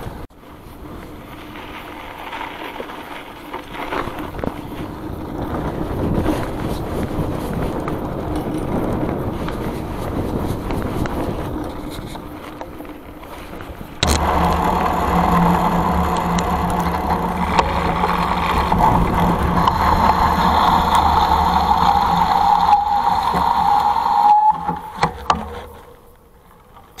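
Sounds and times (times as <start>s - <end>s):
bike tyre humming on dirt: 0.0s - 27.0s.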